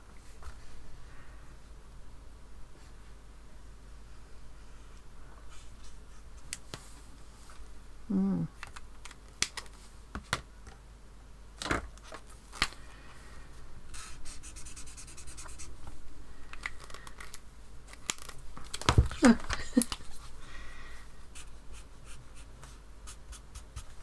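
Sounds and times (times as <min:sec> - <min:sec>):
person humming: 0:08.1 - 0:08.6
brush pen scratching on paper: 0:13.9 - 0:15.8, 0:21.3 - 0:24.0.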